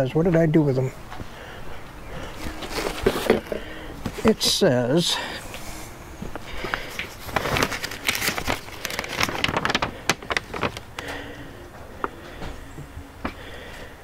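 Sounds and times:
paper rustling and crinkling: 2.2s - 4.6s, 6.2s - 11.4s.

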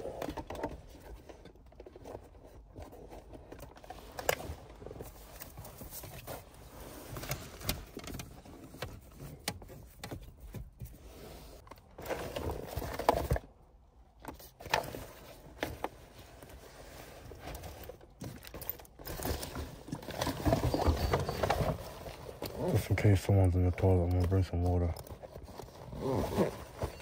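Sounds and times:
backpack rustling: 14.6s - 22.9s, 25.0s - 27.0s.

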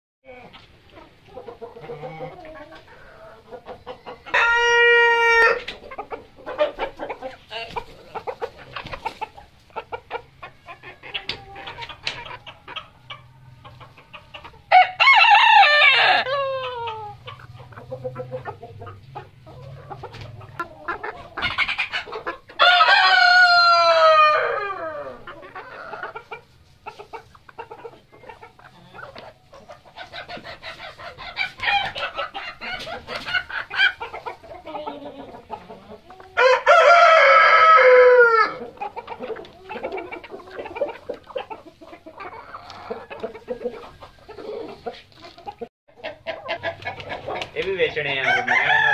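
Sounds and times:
chickens clucking: 0.3s - 48.9s
rooster crowing: 4.3s - 5.7s, 14.7s - 17.2s, 22.6s - 25.3s, 36.4s - 38.6s, 48.1s - 48.9s.

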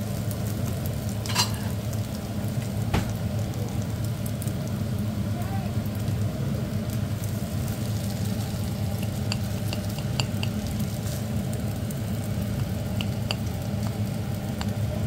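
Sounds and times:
rice sizzling in a frying pan: 0.0s - 15.0s
steady low hum: 0.0s - 15.0s
spatula stirring and scraping: 1.2s - 1.8s, 7.4s - 11.5s.

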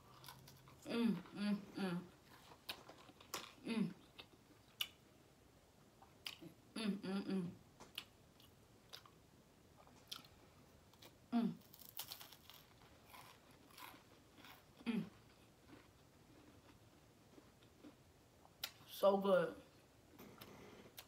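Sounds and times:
crackers being bitten and chewed: 0.0s - 0.9s, 2.2s - 5.0s, 7.8s - 9.2s, 9.8s - 18.8s
crisp crunches: 11.0s - 14.8s.

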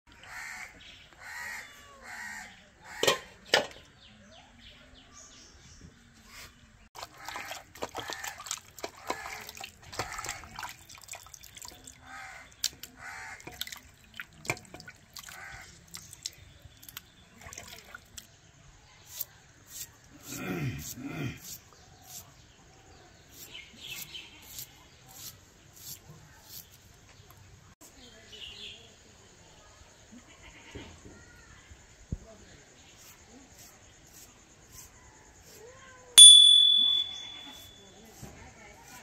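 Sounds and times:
bird calls: 36.2s - 37.7s.

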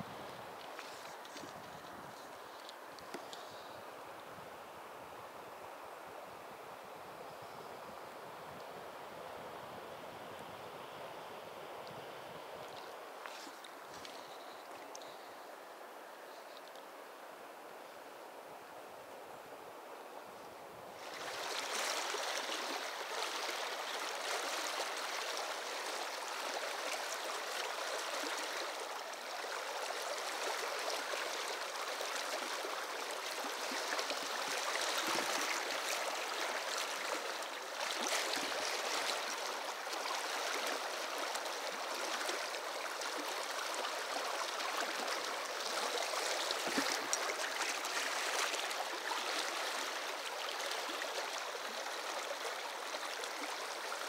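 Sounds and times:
river flowing over rocks: 20.7s - 54.0s.

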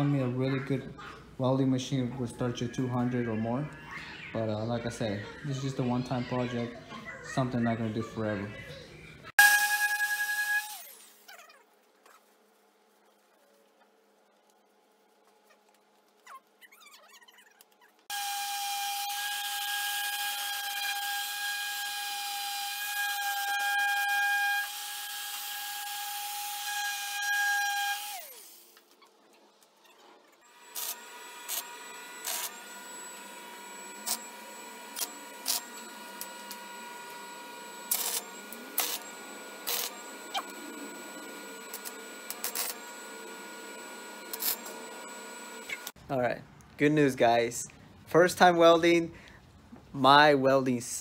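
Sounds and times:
power tool whining: 9.4s - 11.3s, 18.0s - 29.0s, 30.4s - 46.0s
arc welder hissing and popping: 30.5s - 46.0s.

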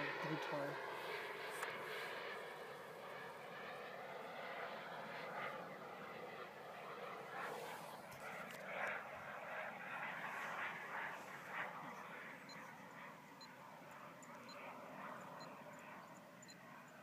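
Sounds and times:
distant model jet turbines rushing: 0.0s - 17.0s.

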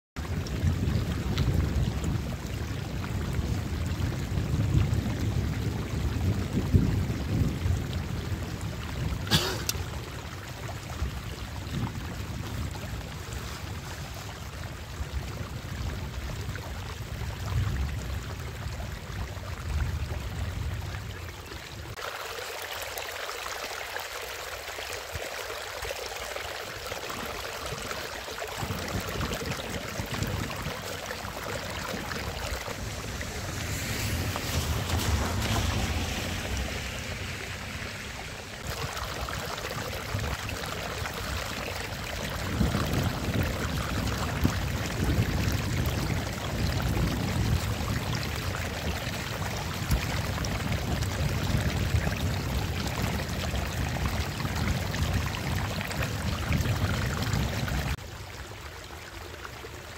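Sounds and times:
shallow water running over ground: 0.2s - 59.9s
water pouring over a ledge: 0.2s - 59.9s.

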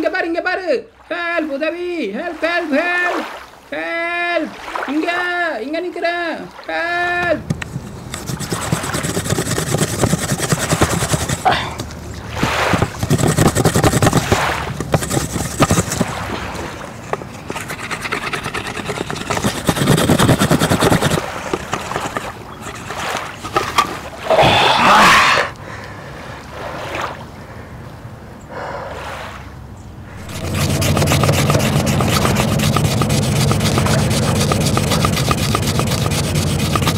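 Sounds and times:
wood rubbing on wood: 7.2s - 25.6s, 30.1s - 36.9s.

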